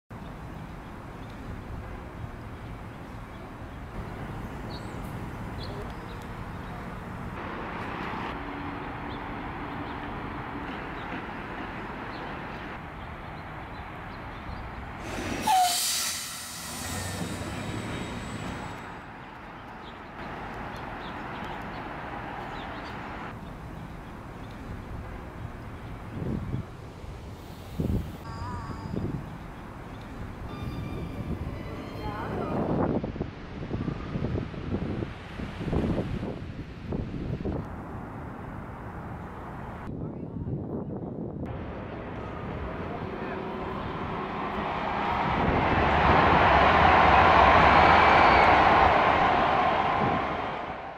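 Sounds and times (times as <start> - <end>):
city background rumble and hiss: 0.1 - 50.9
brief loud rush: 15.0 - 18.9.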